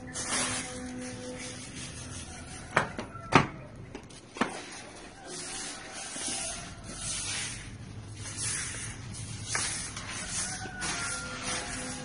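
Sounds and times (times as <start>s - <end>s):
broom sweeping tiled floor: 0.0s - 3.3s, 4.0s - 12.0s.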